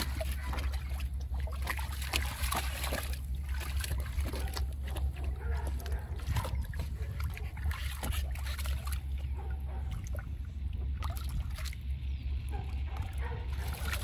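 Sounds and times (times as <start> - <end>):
water splashing in pool: 0.0 - 12.0, 12.9 - 14.0.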